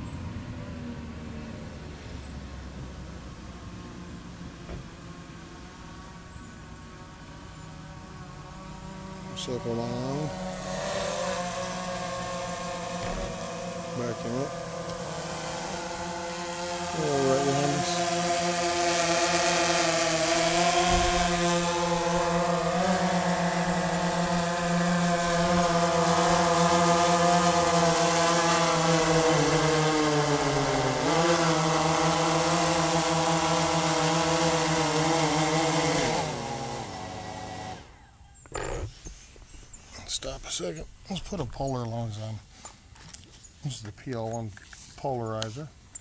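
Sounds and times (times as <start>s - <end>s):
drone propellers buzzing: 4.0s - 42.8s
drone motors winding down: 7.0s - 42.2s.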